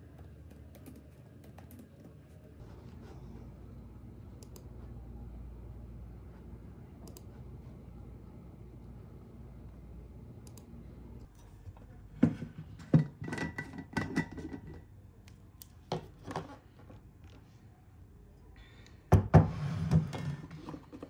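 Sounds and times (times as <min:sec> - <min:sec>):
household objects knocking and clattering: 0:12.2 - 0:14.8.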